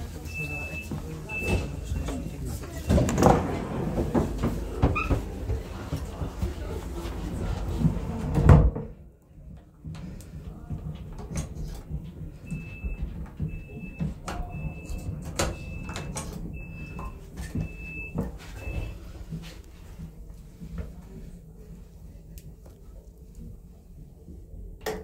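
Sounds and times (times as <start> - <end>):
sliding door thudding shut: 2.9 - 6.0, 7.4 - 9.0.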